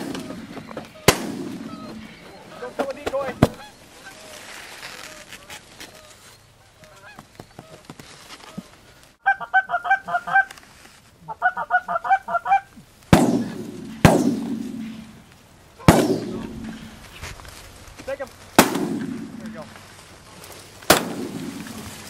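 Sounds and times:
shotgun blasts: 0:00.0 - 0:02.1, 0:13.1 - 0:15.1, 0:15.8 - 0:17.0, 0:18.6 - 0:19.6, 0:20.9 - 0:21.9
geese honking: 0:00.0 - 0:04.6, 0:05.3 - 0:07.8, 0:09.2 - 0:10.6, 0:11.2 - 0:17.2.

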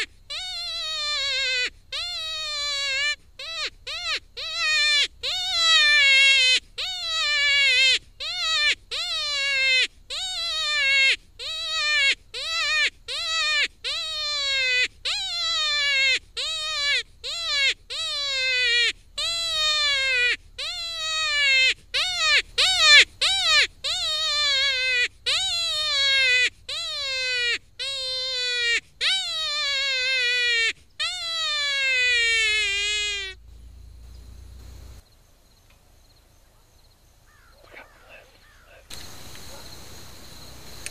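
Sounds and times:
electronic bleating distress call: 0:00.0 - 0:33.4
faint low rumble: 0:33.4 - 0:35.0.

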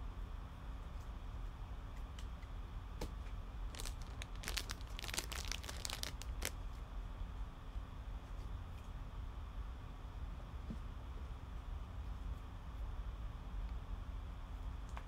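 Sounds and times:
plastic sleeves crinkling: 0:03.7 - 0:06.6
sharp crackles: 0:03.7 - 0:06.6.

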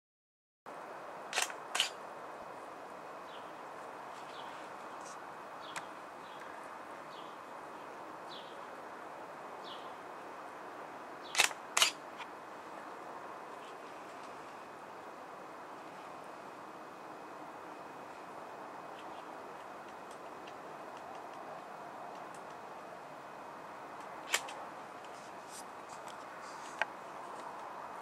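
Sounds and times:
outdoor hiss: 0:00.7 - 0:28.0
camera shutter clicking: 0:01.3 - 0:02.0, 0:11.4 - 0:12.0.

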